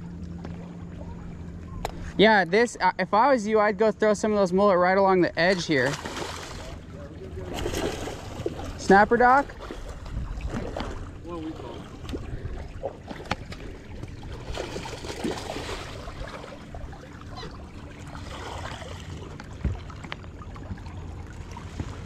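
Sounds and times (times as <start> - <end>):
water lapping against boat hull: 0.0 - 22.0
wind rumble on microphone: 9.4 - 14.6.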